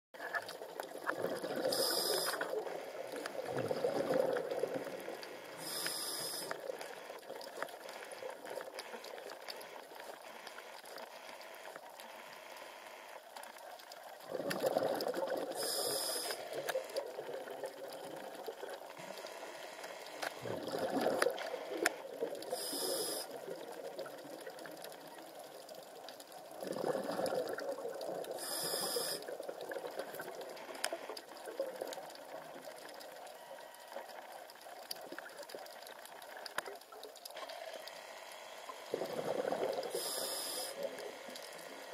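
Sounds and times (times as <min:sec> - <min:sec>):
exhaled bubbles underwater: 0:00.2 - 0:10.0, 0:14.0 - 0:19.3, 0:20.4 - 0:37.4, 0:38.8 - 0:41.9
regulator breathing hiss: 0:01.7 - 0:02.5, 0:05.4 - 0:06.6, 0:15.6 - 0:16.7, 0:22.5 - 0:23.4, 0:28.4 - 0:29.2, 0:39.8 - 0:41.9.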